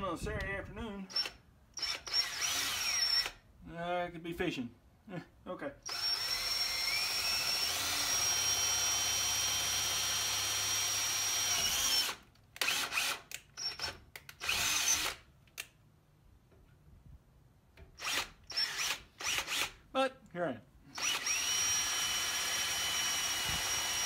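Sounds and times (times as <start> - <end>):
cordless drill boring into metal: 1.0 - 3.4, 5.8 - 15.2, 17.8 - 19.8, 20.9 - 24.0.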